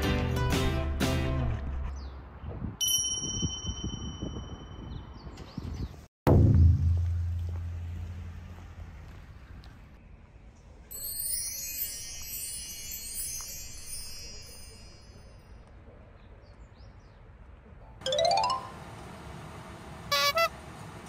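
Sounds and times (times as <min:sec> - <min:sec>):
glittering chime sweep: 0:11.0 - 0:15.3.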